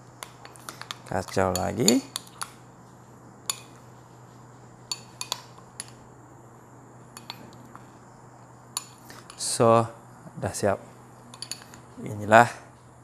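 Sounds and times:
spoon clinking on glass: 11.3 - 11.8.

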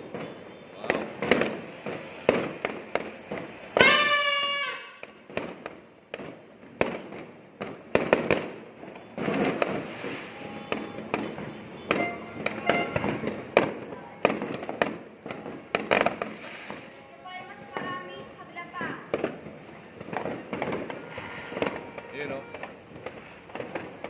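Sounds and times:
firecrackers banging: 0.0 - 24.0.

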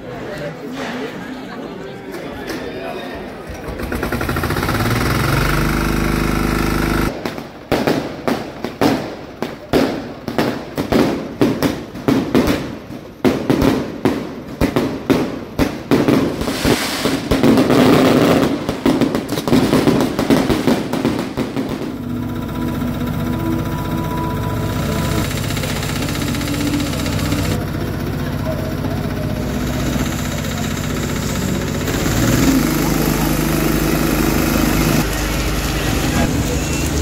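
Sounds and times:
firecrackers banging: 3.4 - 37.0
water pump engine running: 3.5 - 7.2, 17.4 - 37.0
hissing sparks fountain: 3.6 - 7.5, 16.1 - 37.0.

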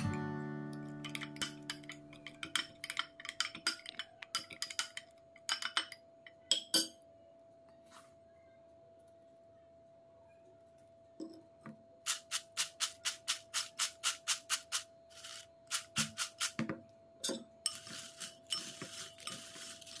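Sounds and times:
chips rattling in shaken container: 12.1 - 16.6, 17.7 - 20.0.

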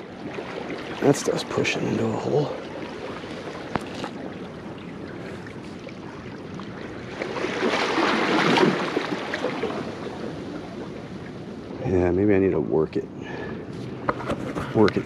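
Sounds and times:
seawater sloshing among rocks: 0.0 - 11.8.

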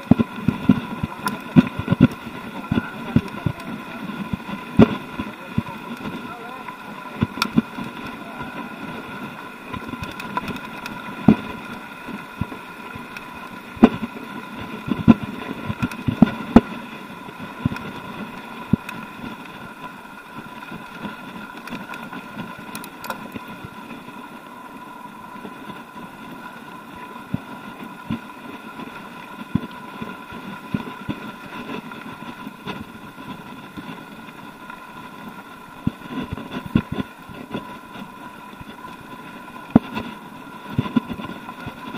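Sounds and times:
bike rattling over stones: 0.0 - 24.2
bike tyres humming on gravel: 0.0 - 41.9.

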